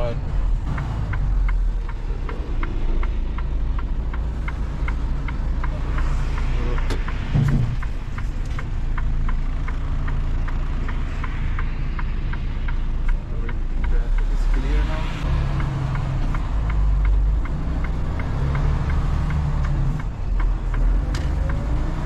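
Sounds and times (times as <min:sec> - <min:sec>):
truck engine and road noise: 0:00.0 - 0:22.0
light ticking: 0:00.1 - 0:22.0
brief loud thump: 0:07.3 - 0:07.9.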